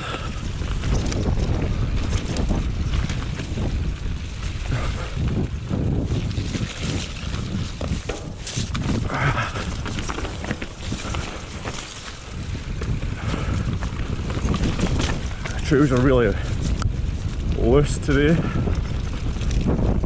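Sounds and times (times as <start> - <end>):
bike rattling and knocking: 0.0 - 20.0
wind buffeting microphone: 0.0 - 20.0
tyres rumbling over ground: 6.9 - 16.8.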